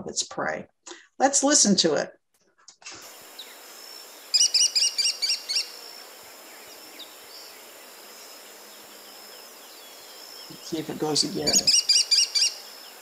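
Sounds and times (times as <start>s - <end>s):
faint bird chirps: 4.2s - 13.0s
kestrel calling sharp kee notes: 10.4s - 12.7s.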